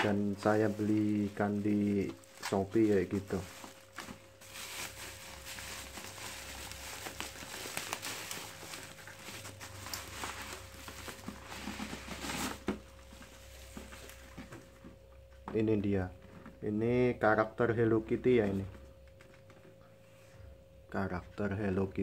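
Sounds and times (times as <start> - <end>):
bubble wrap crinkling and rustling: 0.0 - 14.8.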